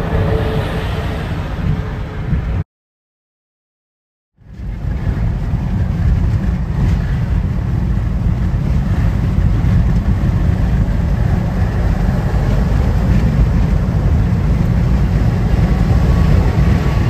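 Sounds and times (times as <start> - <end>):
wind noise: 0.0 - 2.6, 4.4 - 17.0
road rumble inside car: 4.4 - 17.0.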